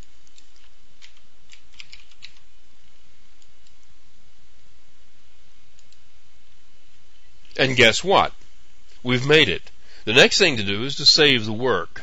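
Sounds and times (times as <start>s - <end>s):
keyboard keys typing: 0.0s - 2.4s
steady low hum: 0.0s - 12.0s.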